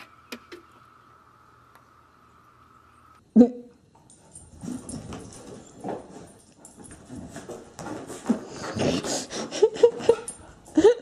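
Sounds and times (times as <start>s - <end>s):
puppy breathing: 8.4s - 10.2s.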